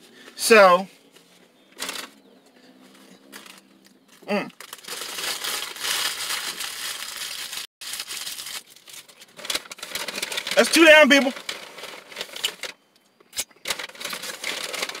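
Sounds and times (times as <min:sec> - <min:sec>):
paper wrapper crinkling: 0:04.5 - 0:12.8, 0:13.6 - 0:15.0.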